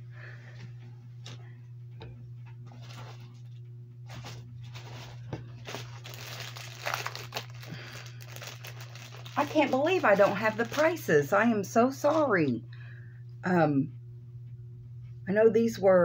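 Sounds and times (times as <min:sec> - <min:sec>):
steady low hum: 0:00.0 - 0:16.0
plastic wrap crinkling: 0:02.6 - 0:12.3.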